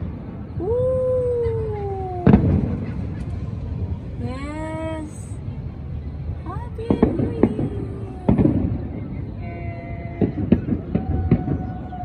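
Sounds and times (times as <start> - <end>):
firework wail: 0.6 - 3.3, 6.9 - 12.0
firework bang: 2.2 - 3.4, 6.9 - 9.3, 10.1 - 12.0.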